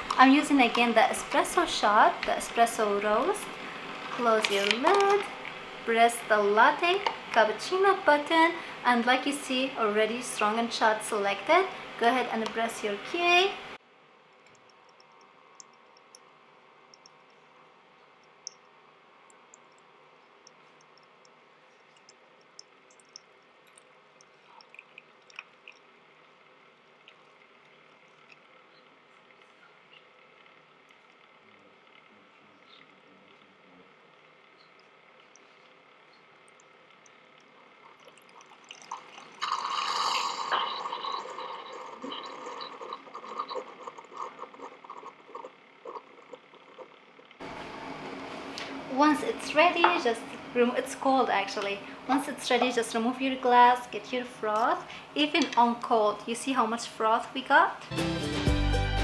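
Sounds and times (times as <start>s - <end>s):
crackling and ticking ice: 19.3s - 25.9s
coffee machine hum: 24.3s - 55.1s
coffee pouring onto ice: 37.8s - 44.8s
ice crackling: 37.8s - 46.4s.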